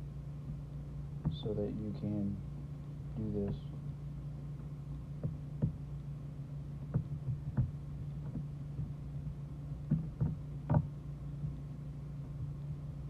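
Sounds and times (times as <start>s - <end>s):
steady low hum: 0.0s - 13.0s
soft taps: 1.2s - 1.5s, 4.6s - 5.8s, 6.8s - 11.6s.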